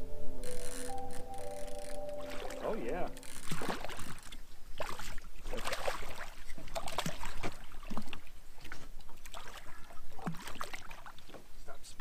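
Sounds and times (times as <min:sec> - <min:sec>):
water splashing: 0:02.2 - 0:11.6.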